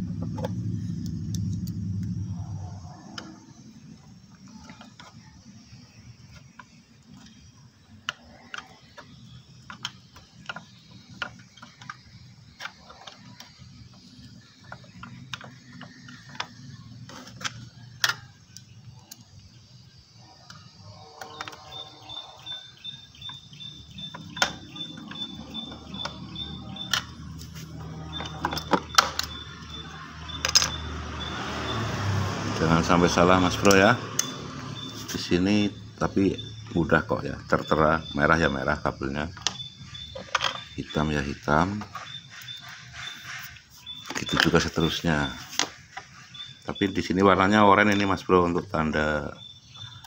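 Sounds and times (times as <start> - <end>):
low rumble: 0.0 - 4.2.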